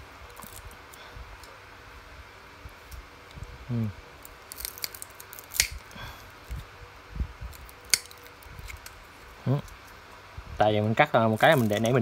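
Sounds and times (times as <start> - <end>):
side cutters snipping wire: 4.5 - 5.9.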